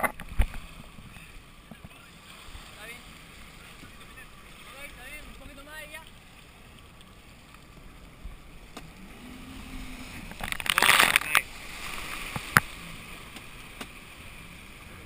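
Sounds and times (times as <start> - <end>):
water sloshing: 0.0 - 15.0
faint engine hum: 0.7 - 15.0
rush of spray: 8.8 - 15.0.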